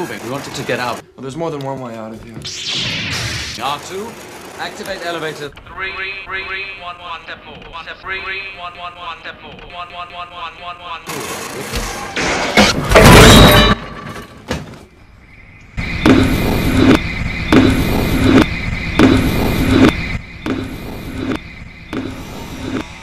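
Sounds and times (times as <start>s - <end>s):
machinery grinding and sparking: 2.4s - 5.3s, 15.8s - 23.0s
looped mechanical noise with high tone: 15.8s - 23.0s.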